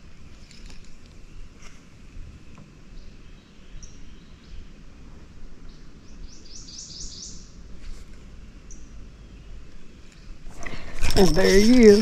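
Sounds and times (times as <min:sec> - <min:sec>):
songbird singing: 0:02.4 - 0:04.8, 0:05.6 - 0:07.6, 0:08.6 - 0:12.0.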